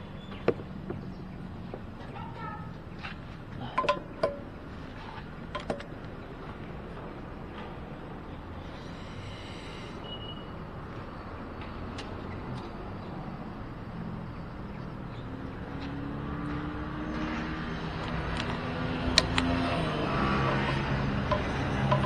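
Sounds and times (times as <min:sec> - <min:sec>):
road noise: 0:00.0 - 0:22.0
motorcycle engine: 0:16.3 - 0:22.0.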